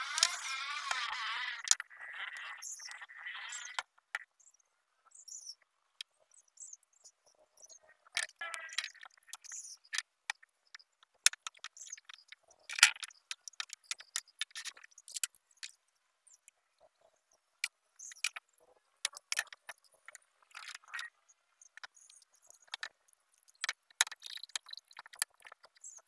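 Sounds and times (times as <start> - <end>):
wooden parts clicking and knocking: 8.2 - 15.8, 19.0 - 21.0, 21.7 - 26.0.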